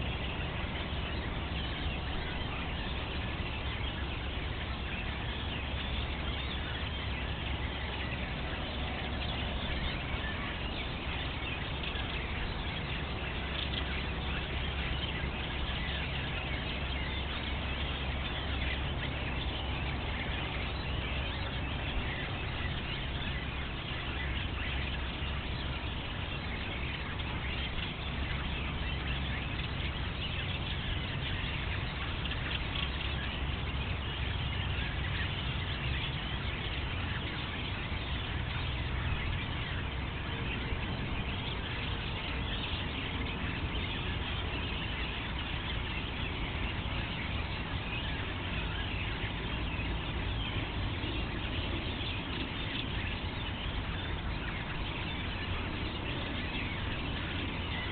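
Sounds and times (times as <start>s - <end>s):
low rumble and hiss: 0.0s - 57.9s
songbirds chirping: 0.0s - 57.9s.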